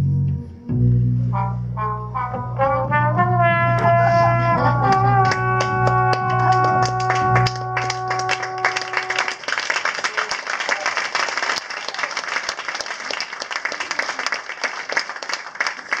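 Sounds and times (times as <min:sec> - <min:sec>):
brass band chord: 0:00.9 - 0:09.4
audience applause: 0:04.1 - 0:16.0.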